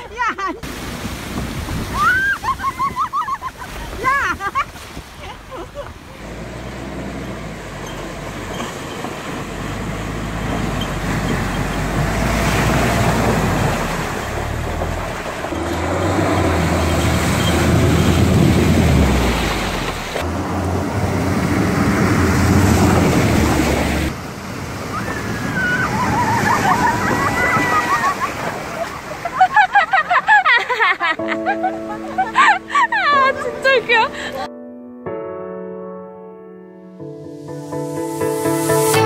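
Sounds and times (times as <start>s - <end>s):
water splashing around tyres: 0.6s - 30.9s
engine running under load: 5.6s - 29.6s
electronic music bass line: 37.5s - 39.0s.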